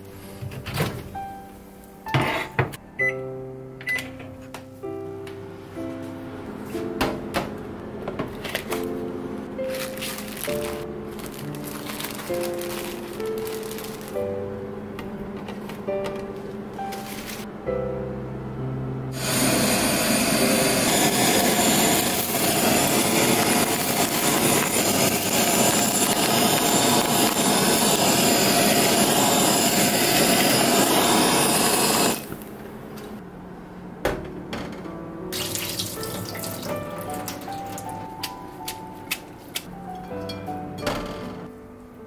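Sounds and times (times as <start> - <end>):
background music: 0.0 - 30.3, 34.3 - 42.0
cooking torch hissing: 19.1 - 32.5.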